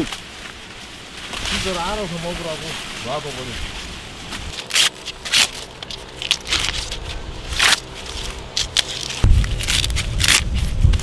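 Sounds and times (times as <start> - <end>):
corn husks crackling and tearing: 0.0 - 11.0
wind rumbling on microphone: 9.1 - 11.0.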